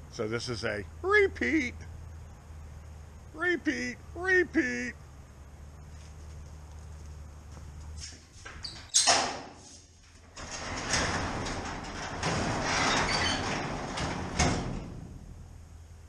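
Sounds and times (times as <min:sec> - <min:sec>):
garage door clanking: 0:08.6 - 0:15.7
rollers rumbling along tracks: 0:10.3 - 0:15.7.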